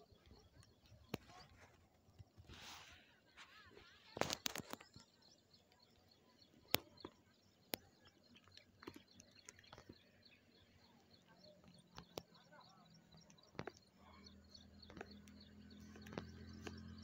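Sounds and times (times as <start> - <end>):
distant birds chirping: 3.5 - 17.0.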